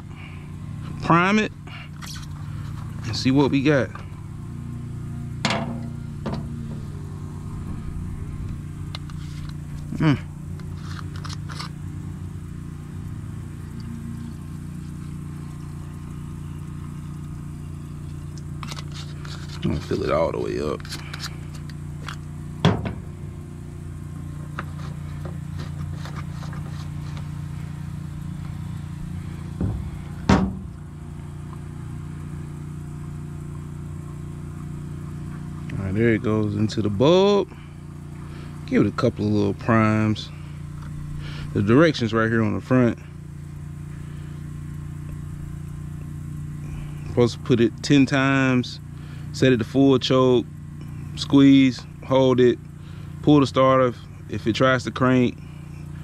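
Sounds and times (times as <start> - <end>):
steady low hum: 0.0 - 56.0
sharp knocks: 5.4 - 6.8, 29.6 - 30.8
handling knocks: 5.4 - 6.9, 22.6 - 23.2, 29.5 - 30.8.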